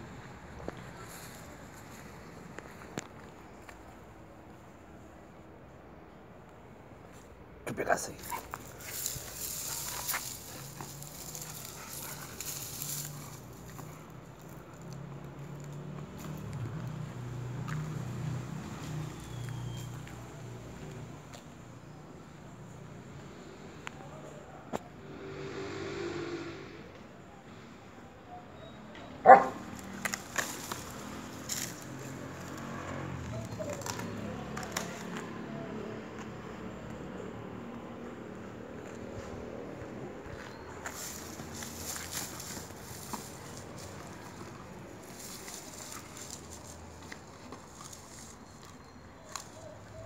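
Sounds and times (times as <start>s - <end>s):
dry leaves crackling on grass: 8.2s - 14.9s, 29.6s - 32.6s, 40.8s - 48.7s
palm frond dragged across grass: 8.7s - 13.8s, 40.9s - 44.3s
dog barking: 29.2s - 29.7s.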